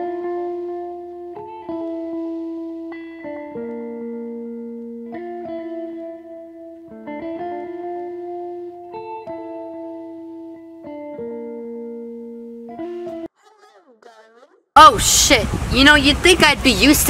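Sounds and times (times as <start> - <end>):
slow sustained music chords: 0.0 - 13.3.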